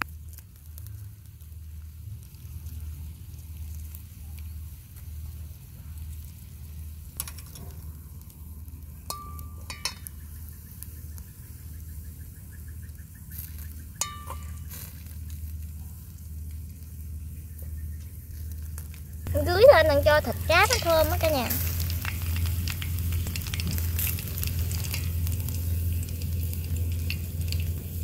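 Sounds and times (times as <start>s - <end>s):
hot oil sizzling on fish: 0.0s - 28.0s
sharp metallic clinks: 9.1s - 10.1s, 14.0s - 14.8s
low rumble: 15.4s - 28.0s.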